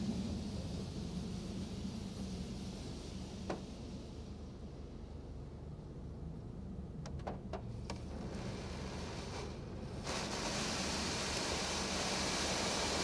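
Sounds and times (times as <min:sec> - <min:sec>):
water jets spraying a car: 0:08.2 - 0:13.0.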